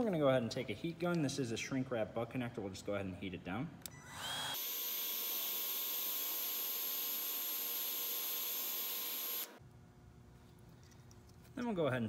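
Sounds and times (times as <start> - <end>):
heat gun fan hissing and whining: 3.8 - 9.6.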